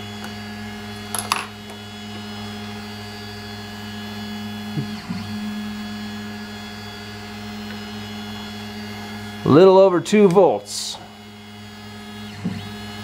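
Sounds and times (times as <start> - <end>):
electrical hum of stepper motors: 0.0 - 13.0.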